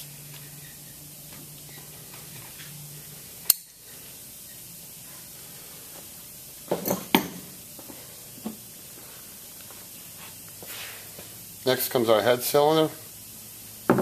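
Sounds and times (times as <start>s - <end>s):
faint steady hiss: 0.0s - 14.0s
tools knocking on workbench: 6.7s - 7.4s.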